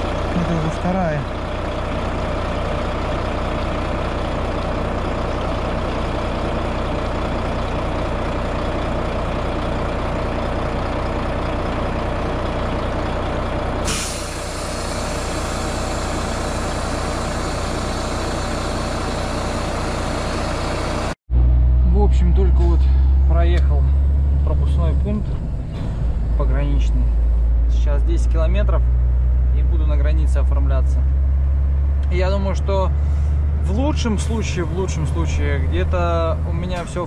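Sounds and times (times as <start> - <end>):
truck diesel engine idling: 0.0 - 21.2, 21.8 - 37.0
compressed air hiss: 13.8 - 17.0.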